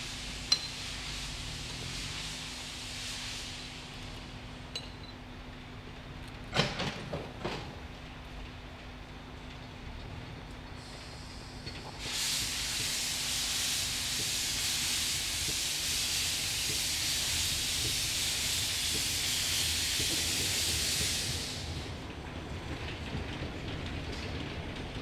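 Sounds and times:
steam hissing: 0.0s - 4.2s, 10.8s - 22.0s.

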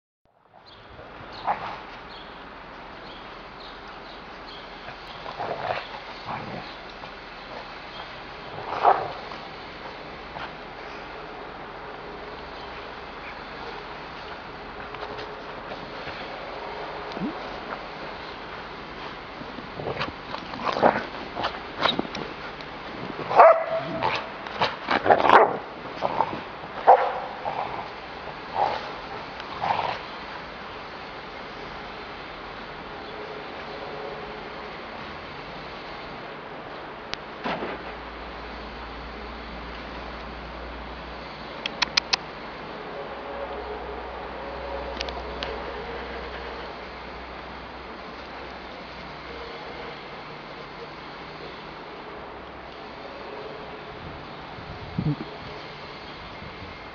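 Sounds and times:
dogs play-wrestling: 0.6s - 31.8s
dogs barking: 8.7s - 9.3s, 23.2s - 25.7s, 26.8s - 27.4s.

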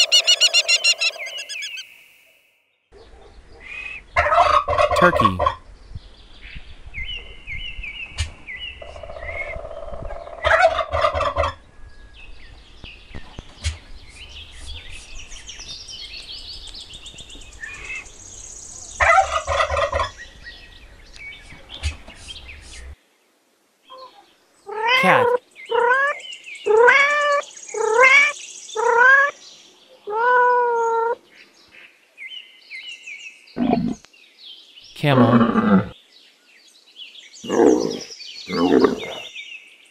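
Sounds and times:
turkeys gobbling: 0.0s - 1.8s, 10.4s - 11.6s
high chirping calls: 0.0s - 2.2s
drawn-out rising falling calls: 0.0s - 2.3s.

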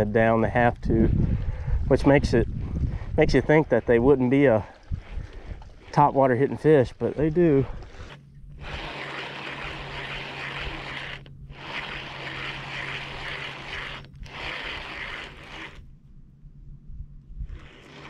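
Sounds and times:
low hum: 0.0s - 18.0s
fishing reel whirring: 0.8s - 16.0s, 17.4s - 18.0s.

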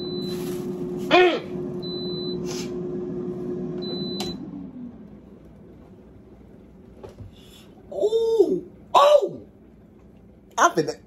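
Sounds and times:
air fryer fan humming: 0.0s - 11.0s.

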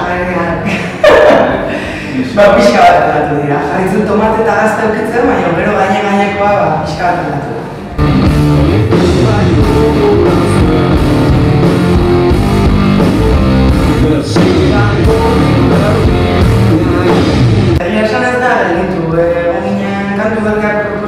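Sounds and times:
rock band playing loudly: 8.0s - 17.8s.

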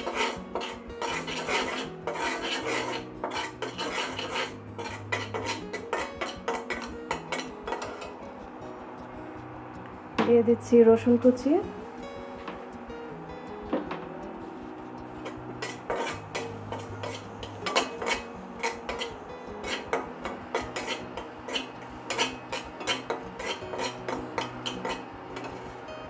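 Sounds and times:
metal spatula scraping wok: 0.0s - 8.2s, 15.1s - 26.0s.

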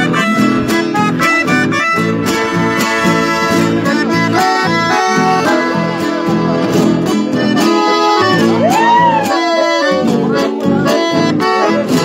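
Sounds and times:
acoustic guitar accompaniment: 0.0s - 12.0s
piano accordion melody: 0.0s - 12.0s.

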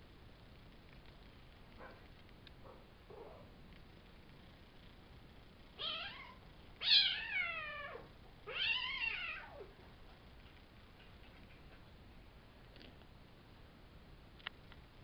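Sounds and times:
kittens meowing: 5.8s - 9.7s.

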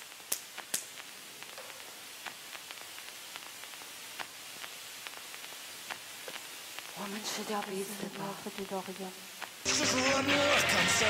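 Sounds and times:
faint scattered ticks: 0.0s - 9.7s
steady hiss: 0.0s - 11.0s
sharp hand smacks: 0.3s - 1.0s.

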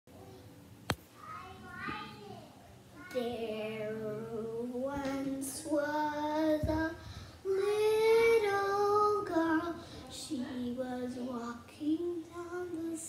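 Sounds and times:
child singing: 3.0s - 13.0s.

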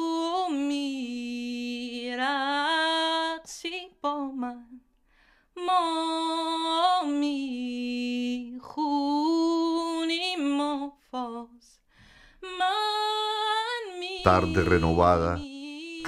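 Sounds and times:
woman singing unaccompanied: 0.0s - 4.8s, 5.6s - 11.8s, 12.4s - 16.0s.

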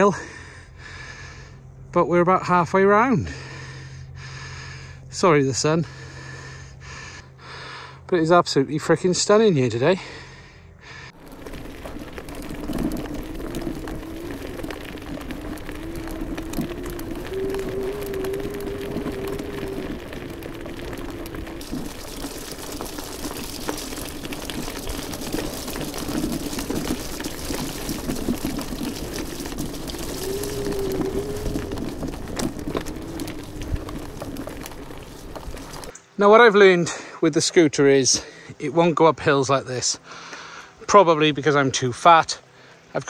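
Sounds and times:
tyres on gravel: 11.1s - 36.8s.

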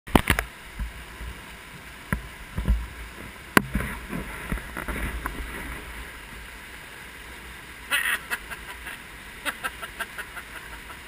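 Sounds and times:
stream rushing: 0.1s - 11.0s
sharp knocks and low thumps: 3.5s - 5.6s.

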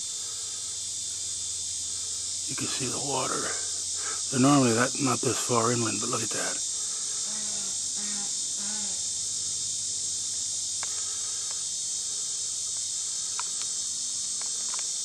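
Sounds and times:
insects droning: 0.0s - 15.0s
faint clicks: 12.7s - 13.8s, 14.4s - 14.9s.

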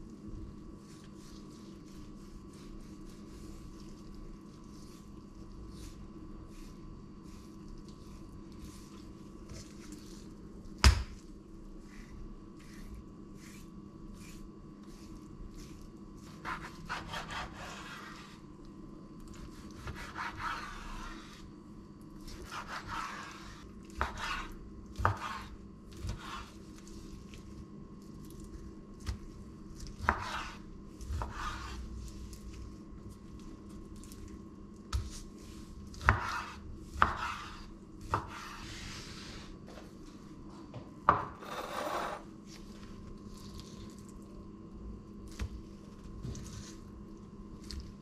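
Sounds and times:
knife scraping through meat: 0.9s - 10.2s, 11.8s - 18.4s, 19.4s - 21.5s, 22.3s - 26.9s, 29.8s - 31.9s.

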